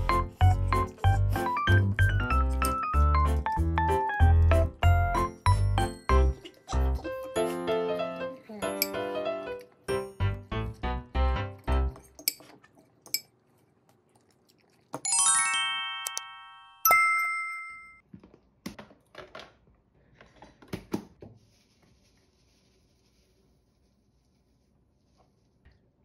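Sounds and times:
rising bell-like chime: 15.1 - 18.0.

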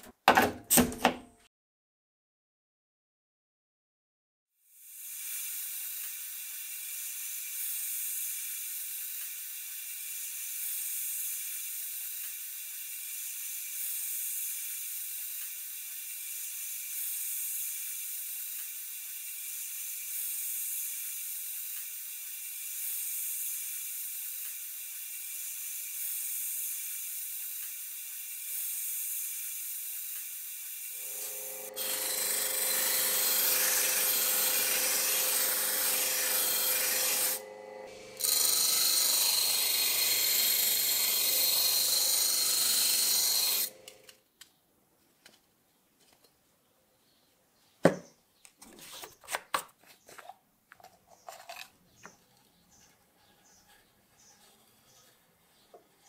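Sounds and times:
polishing wheel buffing metal: 31.0 - 43.9.

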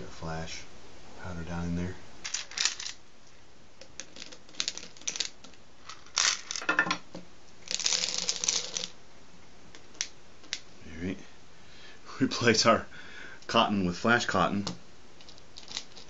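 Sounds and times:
tablets clattering into a bottle: 5.9 - 6.8.

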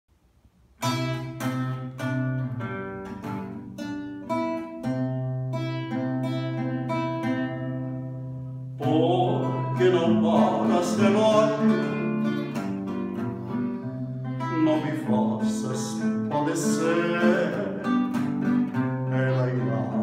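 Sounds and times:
classical guitar playing: 0.8 - 20.0
man singing: 8.8 - 13.2, 14.2 - 20.0.

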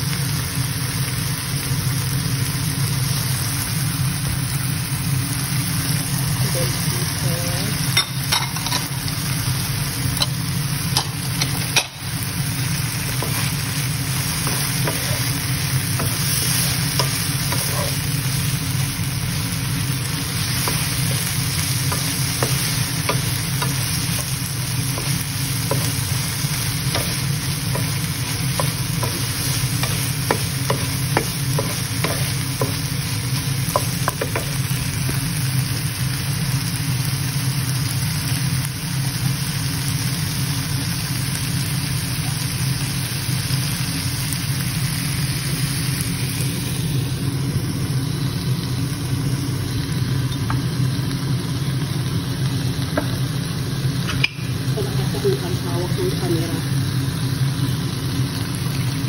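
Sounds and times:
food sizzling in a frying pan: 0.0 - 59.0
spatula scraping and tapping pan: 14.4 - 15.3, 26.9 - 32.8.

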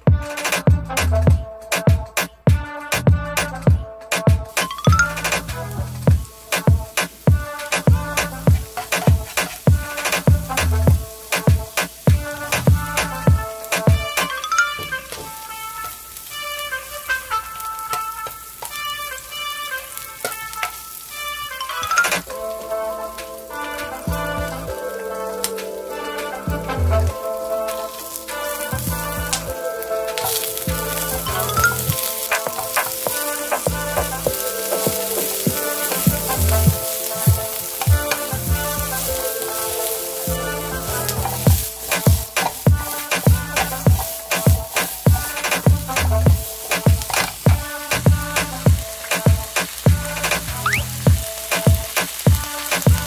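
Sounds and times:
sausages sizzling in oil: 4.4 - 53.0
spatula scraping a pan: 27.6 - 47.8.

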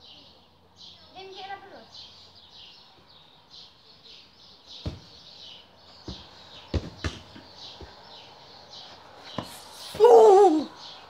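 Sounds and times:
small bird chirping: 0.0 - 11.0.

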